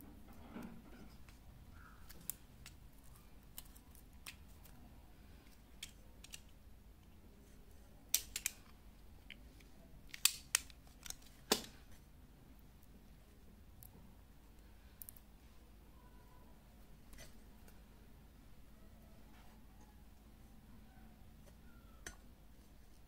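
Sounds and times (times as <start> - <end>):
sharp clicks and snips: 8.1 - 8.8, 9.6 - 11.8.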